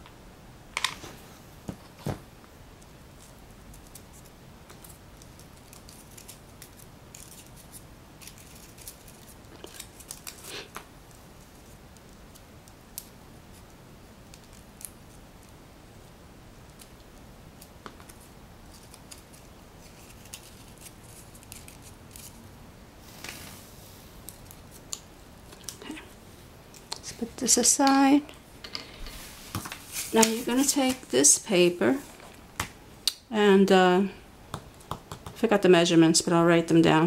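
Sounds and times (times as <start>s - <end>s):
paper crinkling: 3.2s - 10.8s, 18.0s - 22.4s.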